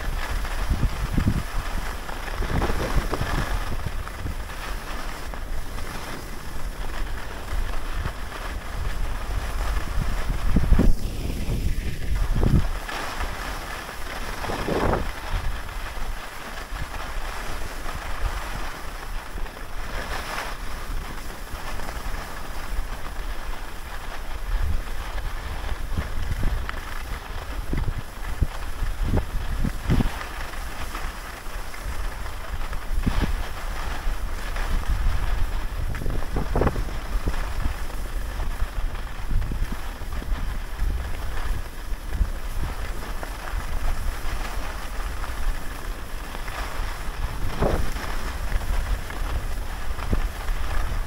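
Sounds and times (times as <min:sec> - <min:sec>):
skis hissing over snow: 0:00.0 - 0:51.0
wind rumbling on microphone: 0:00.0 - 0:51.0.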